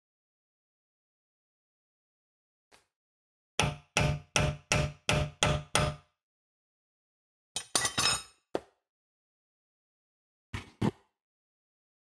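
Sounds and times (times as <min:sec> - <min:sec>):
hammer striking metal: 0:03.6 - 0:06.1.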